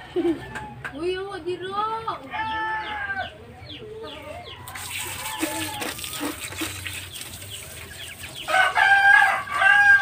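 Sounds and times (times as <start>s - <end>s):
chickens clucking: 0.0s - 10.0s
water hissing from hose: 4.7s - 9.5s.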